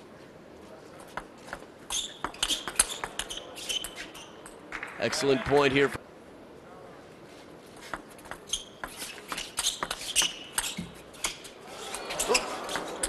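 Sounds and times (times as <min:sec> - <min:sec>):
crowd noise: 0:02.4 - 0:07.3, 0:11.4 - 0:13.0.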